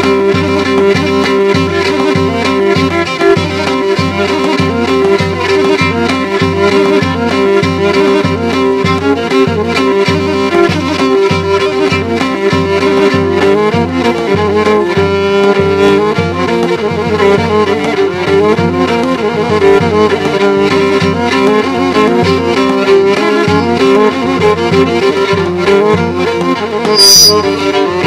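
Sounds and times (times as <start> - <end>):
bowed lyra dance melody: 21.2 - 28.0
drum steady beat: 26.9 - 27.6.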